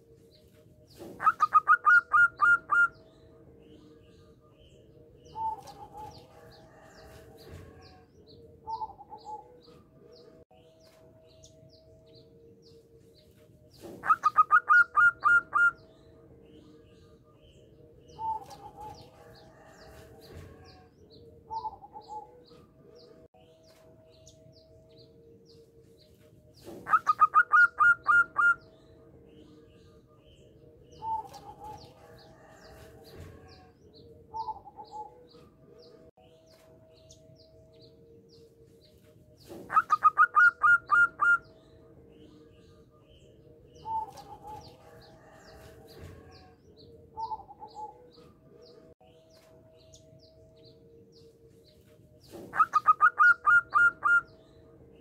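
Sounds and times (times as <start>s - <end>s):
faint high bird chirps: 0.4s - 6.9s, 39.0s - 41.6s, 51.2s - 54.4s
dove cooing: 0.9s - 3.0s, 5.2s - 9.7s, 13.8s - 15.8s, 18.1s - 20.9s, 26.6s - 28.6s, 34.3s - 35.4s, 39.5s - 41.5s, 43.8s - 45.5s, 47.1s - 48.3s, 52.3s - 54.3s.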